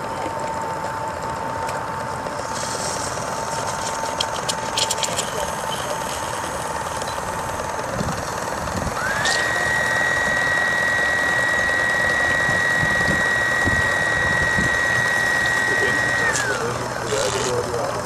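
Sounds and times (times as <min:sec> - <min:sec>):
thin whine: 0:00.0 - 0:18.0
fast mechanical ticking: 0:02.3 - 0:18.0
steam hissing: 0:02.4 - 0:03.9.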